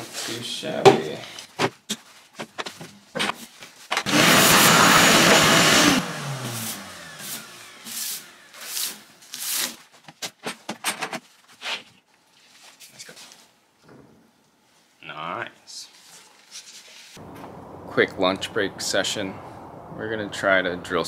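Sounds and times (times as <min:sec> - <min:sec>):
electric power saw winding down: 0:04.1 - 0:08.6.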